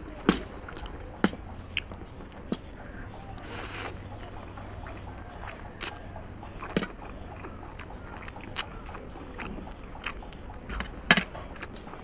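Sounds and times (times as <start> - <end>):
person chewing with wet smacks: 0.0 - 12.0
person slurping noodles: 3.4 - 4.1.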